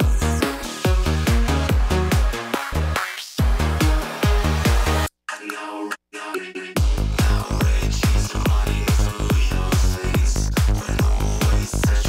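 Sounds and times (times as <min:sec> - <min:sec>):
pounding kick drum: 0:00.0 - 0:02.4, 0:03.4 - 0:05.1, 0:06.8 - 0:12.0
rolling bassline: 0:00.0 - 0:05.1, 0:06.8 - 0:12.0.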